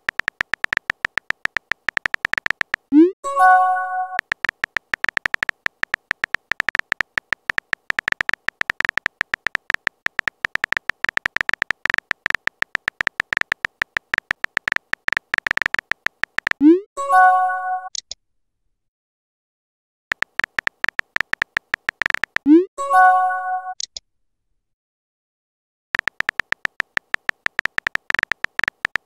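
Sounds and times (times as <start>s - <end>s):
keyboard typing clicks: 0.0s - 16.8s, 20.1s - 22.7s, 26.0s - 29.0s.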